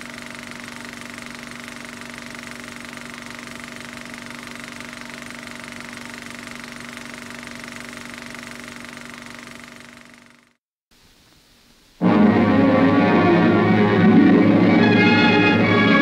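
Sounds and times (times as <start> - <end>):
machine humming: 0.0 - 10.6.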